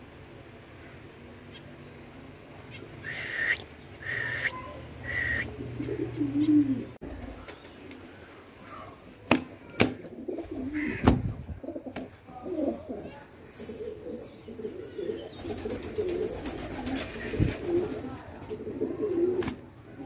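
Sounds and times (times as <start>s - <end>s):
pigeons cooing: 2.8s - 7.4s, 10.0s - 19.6s
short higher calls: 3.0s - 5.6s.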